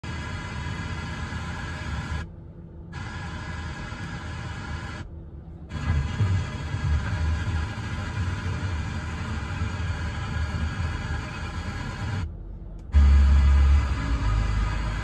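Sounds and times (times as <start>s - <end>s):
car radio audio: 5.7s - 15.0s
strong low rumble: 12.3s - 15.0s.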